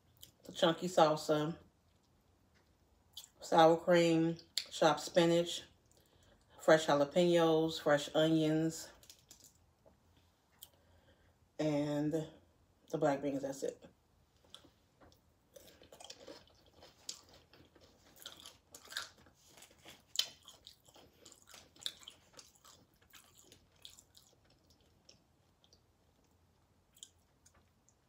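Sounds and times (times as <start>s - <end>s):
person chewing crunchy chips: 14.4s - 28.0s.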